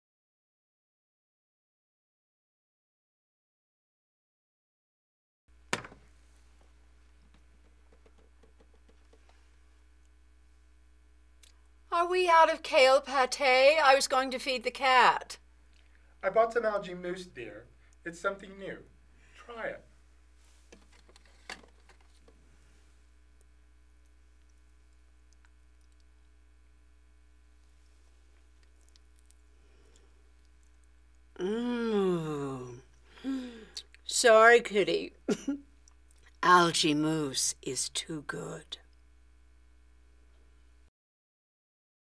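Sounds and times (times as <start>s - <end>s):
refrigerator hum: 18.8s - 38.9s.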